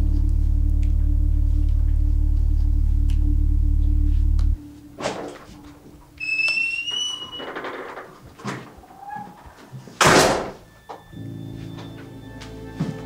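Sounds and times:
low music drone: 0:00.0 - 0:06.9, 0:10.7 - 0:13.0
door shutting loudly: 0:05.0 - 0:11.2
door squeak: 0:05.0 - 0:12.4.

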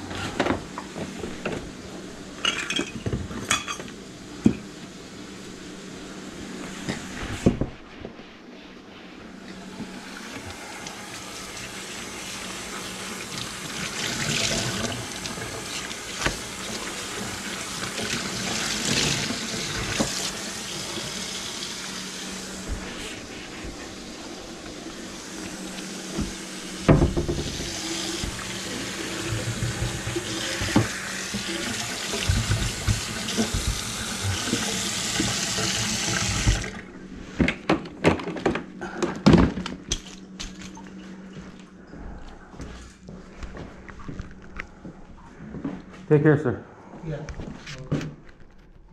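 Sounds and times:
faucet running into metal sink: 0:26.7 - 0:36.8.

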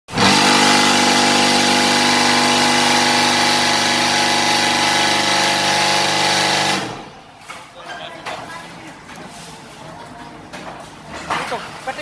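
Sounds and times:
brick making machine humming: 0:00.1 - 0:07.3.

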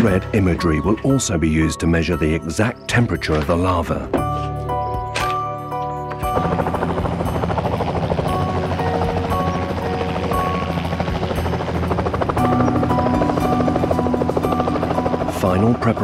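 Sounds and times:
background music with held notes: 0:00.0 - 0:16.0
helicopter rotors chopping: 0:05.1 - 0:16.0.

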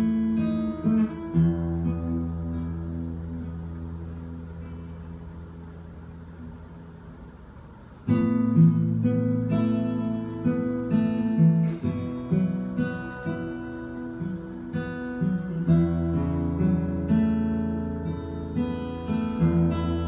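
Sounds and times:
fingerstyle acoustic guitar: 0:00.0 - 0:20.0.

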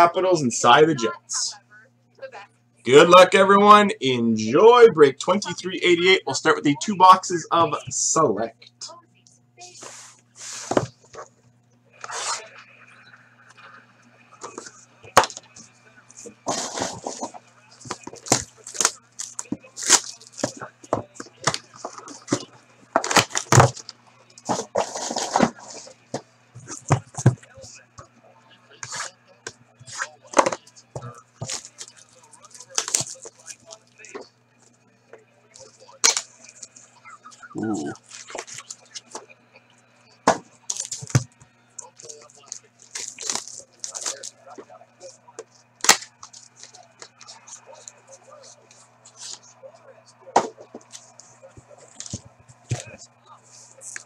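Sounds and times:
faint electrical hum: 0:00.0 - 0:54.0
plastic wrap crinkling: 0:16.3 - 0:26.0, 0:29.9 - 0:34.2, 0:40.6 - 0:41.2, 0:41.9 - 0:45.1.

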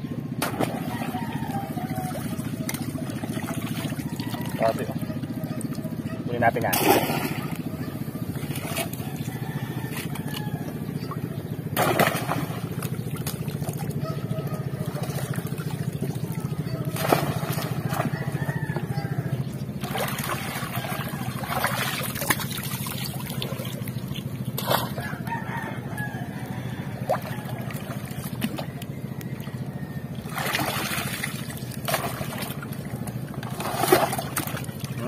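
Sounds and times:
steady low hum: 0:00.0 - 0:35.0
water sloshing and splashing: 0:00.3 - 0:35.0
rooster crowing: 0:00.7 - 0:02.7, 0:03.8 - 0:05.2, 0:08.8 - 0:10.9, 0:17.6 - 0:19.6, 0:20.6 - 0:22.1, 0:24.8 - 0:31.0.

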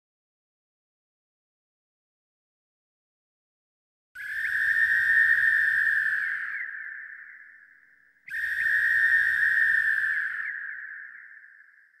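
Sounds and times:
high steady whistle-like note: 0:04.2 - 0:12.0.

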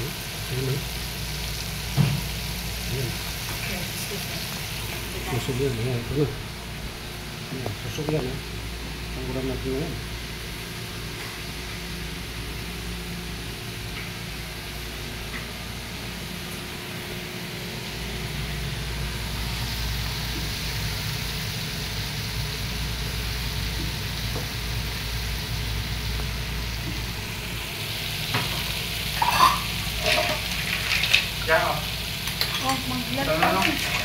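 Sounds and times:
food sizzling in hot oil: 0:00.0 - 0:34.0
metal utensil scraping a pan: 0:28.5 - 0:31.3, 0:32.2 - 0:34.0.

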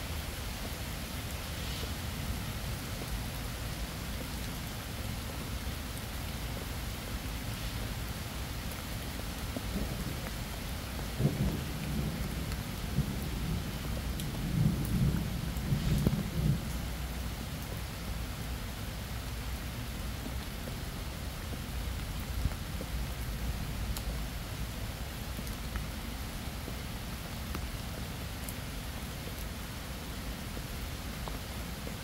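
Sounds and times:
steady rain: 0:00.0 - 0:32.0
thunder rumbling: 0:11.1 - 0:16.8.

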